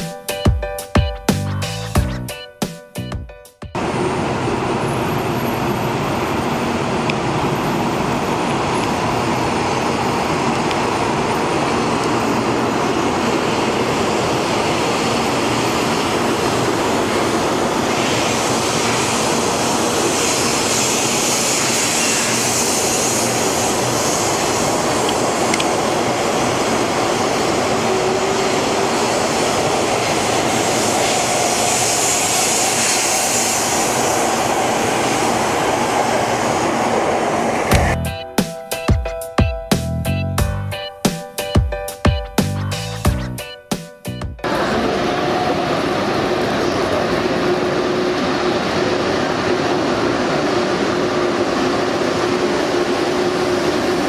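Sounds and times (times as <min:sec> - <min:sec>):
electric train passing: 0:03.8 - 0:54.0
high hiss: 0:17.7 - 0:25.5, 0:30.0 - 0:38.0.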